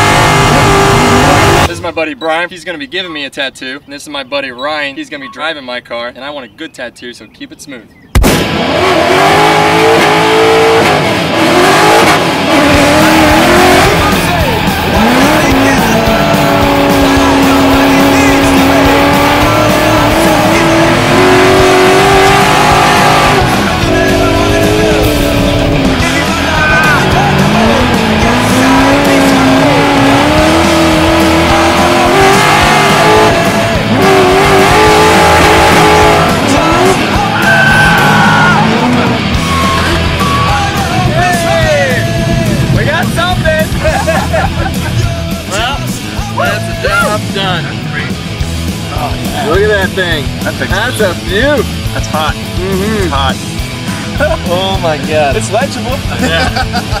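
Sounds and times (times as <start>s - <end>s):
car engine revving hard: 0.0s - 1.7s, 8.2s - 45.0s
tyres screeching: 8.8s - 47.4s.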